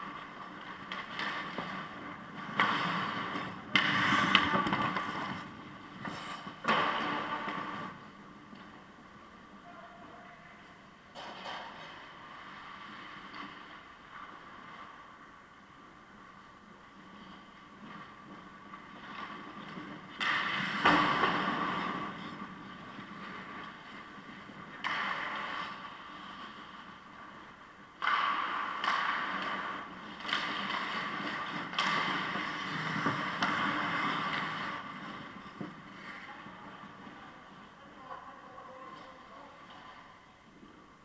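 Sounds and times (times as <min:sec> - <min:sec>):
skate blades scraping ice: 0:00.0 - 0:08.9, 0:17.0 - 0:37.1.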